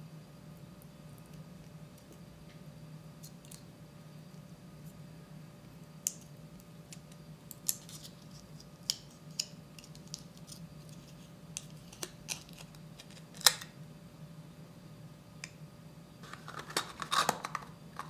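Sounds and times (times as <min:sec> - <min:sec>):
foil wrapper crinkling and tearing: 0:16.3 - 0:18.0.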